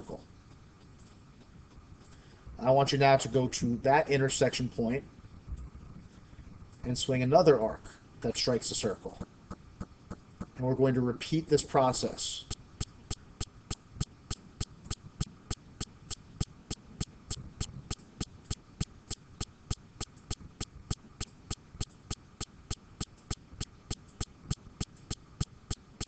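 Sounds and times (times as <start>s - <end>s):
faint low rumble: 0.0s - 26.0s
steady sharp clicking: 12.4s - 26.0s.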